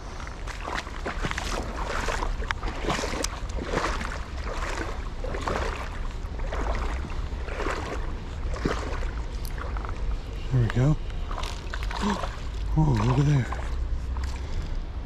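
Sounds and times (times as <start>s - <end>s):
legs wading through water: 0.0s - 15.0s.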